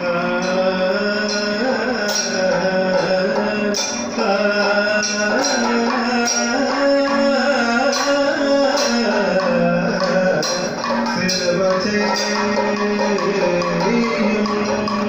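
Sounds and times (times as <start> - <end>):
person singing with sliding notes: 0.0 - 15.0
sharp percussion strikes: 0.0 - 15.0.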